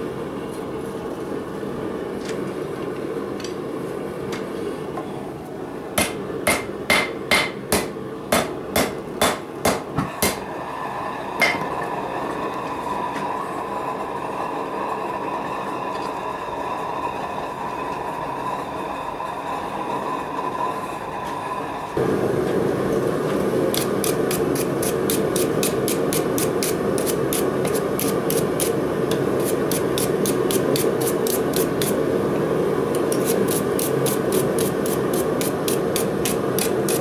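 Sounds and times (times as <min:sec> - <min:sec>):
steady hum: 0:00.0 - 0:37.0
hammer striking metal on anvil: 0:06.0 - 0:10.4, 0:11.4 - 0:11.7.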